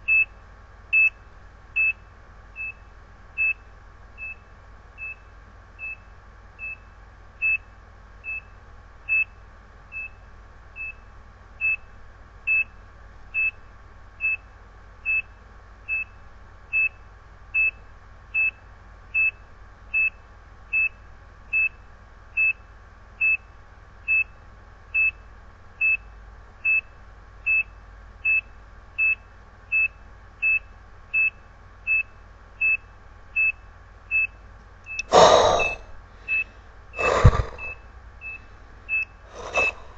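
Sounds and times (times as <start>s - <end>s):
heart monitor beeps: 33.4s - 39.9s.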